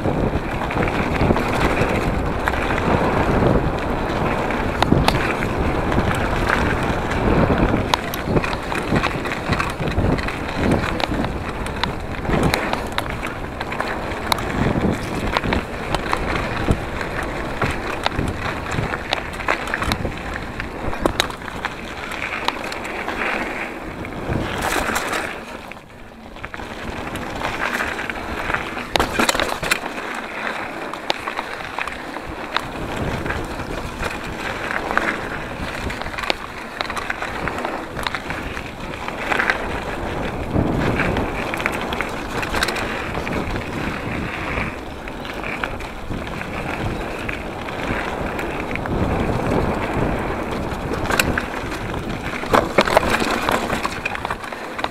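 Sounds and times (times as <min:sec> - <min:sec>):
bike rattling and knocking: 0:00.0 - 0:54.9
tyres on dirt and gravel: 0:00.0 - 0:54.9.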